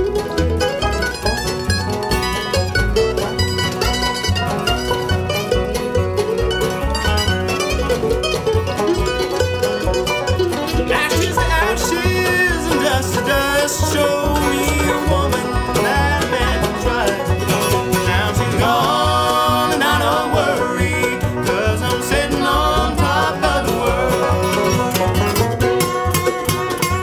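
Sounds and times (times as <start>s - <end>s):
acoustic guitar: 0.0s - 27.0s
banjo: 0.0s - 27.0s
fiddle: 0.0s - 27.0s
mandolin: 0.0s - 27.0s
upright bass pulse: 0.0s - 27.0s
people singing harmony: 11.6s - 25.0s.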